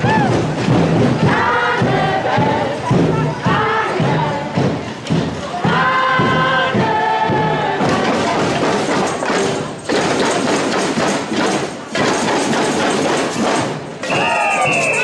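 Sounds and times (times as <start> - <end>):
carnival parade music: 0.0 - 15.0
percussion thumps: 0.0 - 15.0
group singing: 1.2 - 4.8, 5.5 - 9.6.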